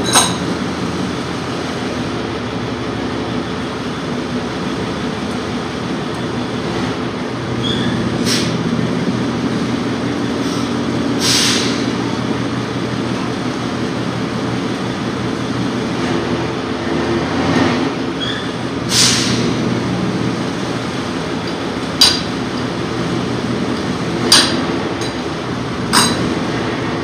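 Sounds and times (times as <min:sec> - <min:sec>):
machinery droning: 0:11.8 - 0:27.0.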